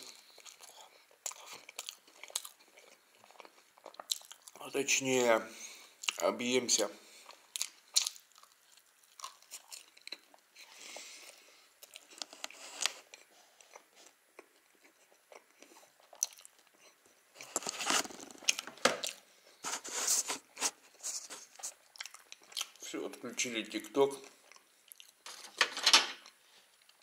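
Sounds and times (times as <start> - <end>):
chewing and crunching: 0.0 - 4.7, 5.8 - 6.2, 7.1 - 19.6, 20.8 - 22.9, 24.2 - 25.5.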